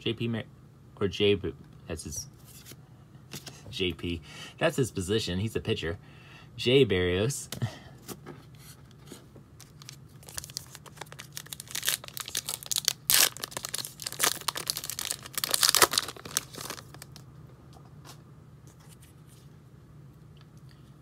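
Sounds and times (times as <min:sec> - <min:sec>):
wrapper tearing and crinkling: 0:09.6 - 0:17.2.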